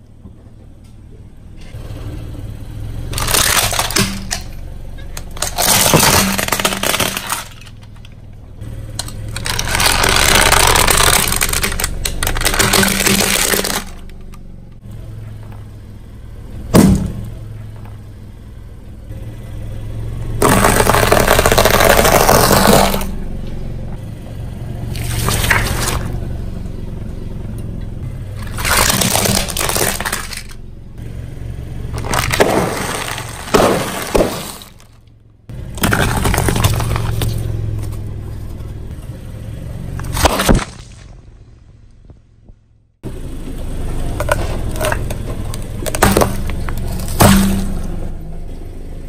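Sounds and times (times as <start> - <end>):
low car hum: 0.0 - 49.0
tyre crushing objects: 3.1 - 4.6, 5.2 - 8.1, 8.9 - 14.2, 16.7 - 17.4, 20.4 - 23.2, 24.9 - 26.2, 28.4 - 30.6, 31.9 - 38.6, 40.0 - 41.3, 44.2 - 48.2
balloon bursting: 20.4 - 23.1.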